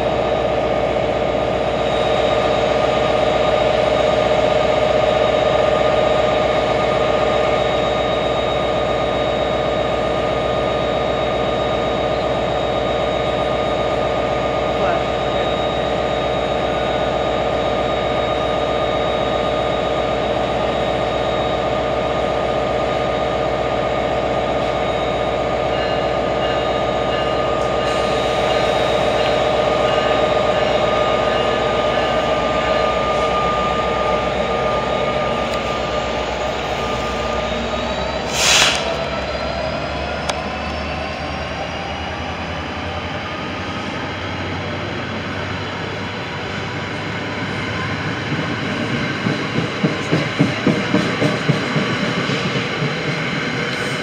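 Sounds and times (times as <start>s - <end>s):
locomotive running hum: 0.0s - 54.0s
train whine rising in pitch: 0.0s - 54.0s
air hiss: 38.2s - 39.0s.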